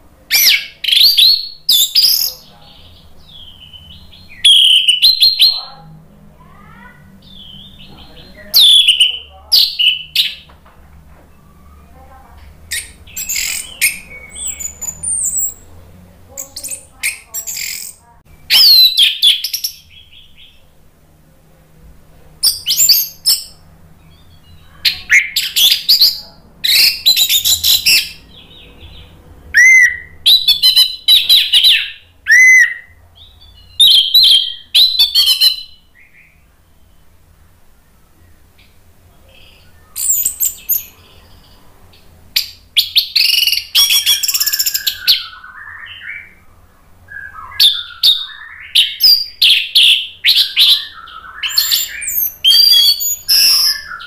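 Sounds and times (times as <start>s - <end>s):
thrush singing whistled song: 0.3s - 2.4s, 3.2s - 5.7s, 7.2s - 10.5s, 12.7s - 15.7s, 16.4s - 20.6s, 22.4s - 37.2s, 39.4s - 41.2s, 42.4s - 54.0s.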